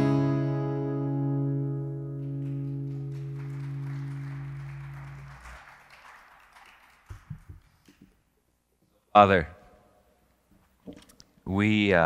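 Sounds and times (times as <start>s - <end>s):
acoustic guitar chord ringing: 0.0s - 5.2s.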